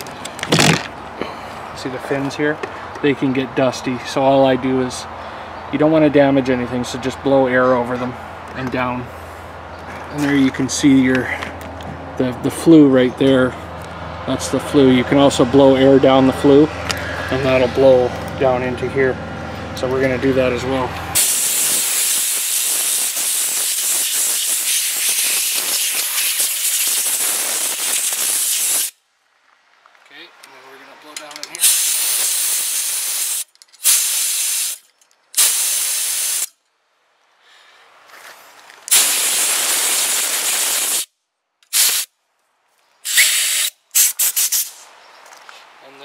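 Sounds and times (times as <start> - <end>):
compressed air blow gun hissing: 21.2 - 29.0, 31.6 - 34.8, 35.4 - 36.5, 38.9 - 41.1, 41.7 - 42.1, 43.0 - 44.8.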